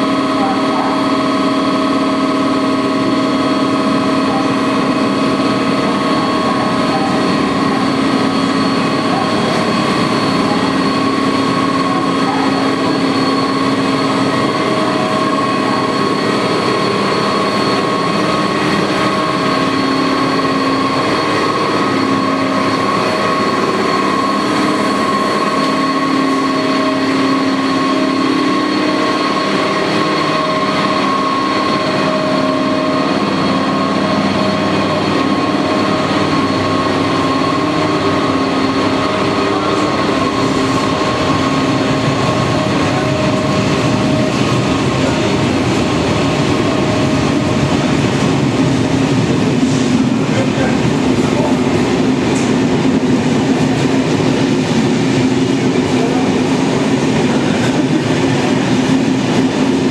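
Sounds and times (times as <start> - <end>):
locomotive blowers rushing: 0.0 - 59.9
steady whining tones: 0.0 - 59.9.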